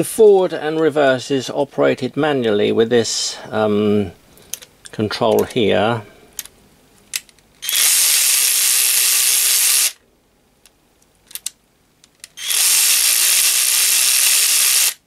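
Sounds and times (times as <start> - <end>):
cordless ratchet wrench whirring: 7.6 - 10.0, 12.3 - 15.0.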